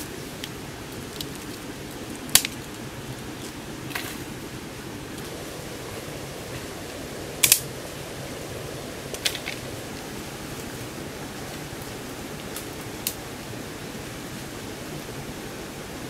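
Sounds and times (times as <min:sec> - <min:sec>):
steady background hiss: 0:00.0 - 0:16.0
sticks and twigs snapping: 0:00.4 - 0:04.3, 0:07.4 - 0:07.7, 0:12.4 - 0:13.2.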